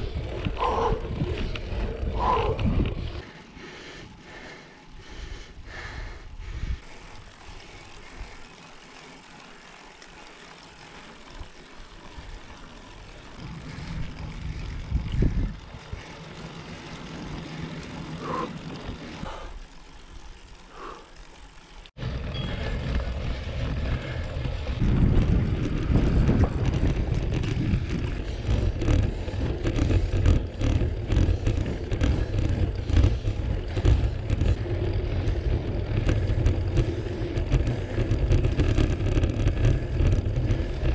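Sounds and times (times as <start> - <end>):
wind rumbling on microphone: 0.0 - 3.4, 13.3 - 16.2, 22.0 - 40.9.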